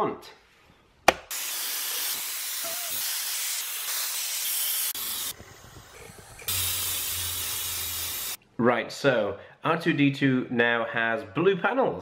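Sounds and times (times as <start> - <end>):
spray paint can hissing: 1.3 - 8.4.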